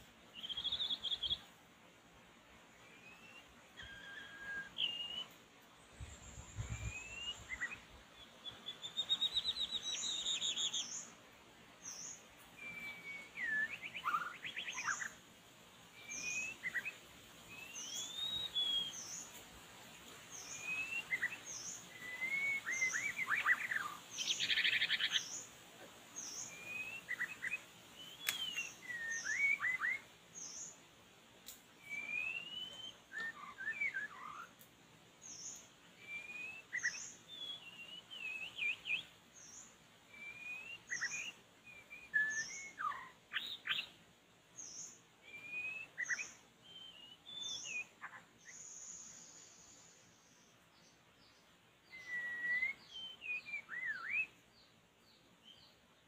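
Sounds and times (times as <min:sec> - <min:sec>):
bird singing whistled phrases: 0:00.4 - 0:01.4, 0:02.9 - 0:05.4, 0:06.5 - 0:07.8, 0:08.4 - 0:10.9, 0:12.6 - 0:15.2, 0:16.0 - 0:19.1, 0:20.4 - 0:25.3, 0:26.4 - 0:30.1, 0:31.8 - 0:34.5, 0:36.0 - 0:39.1, 0:40.1 - 0:43.9, 0:44.7 - 0:49.5, 0:51.8 - 0:54.4.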